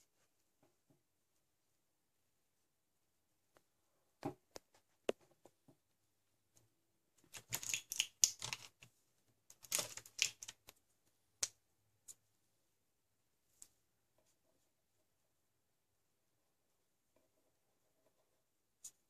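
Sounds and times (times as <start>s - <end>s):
plastic markers clattering: 7.3s - 8.9s, 9.5s - 10.7s.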